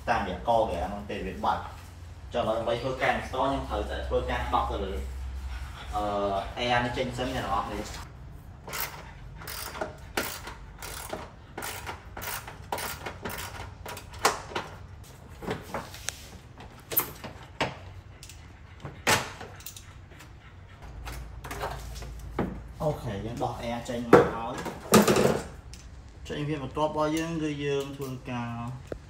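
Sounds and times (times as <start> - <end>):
hand tool clicks and rattles: 8.7 - 14.8.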